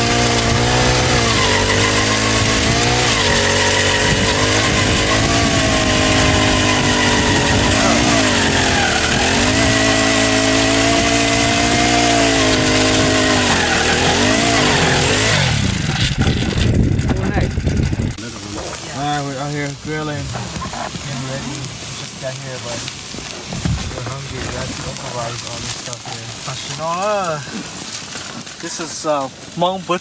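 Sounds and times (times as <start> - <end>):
ice auger engine running: 0.0 - 22.3.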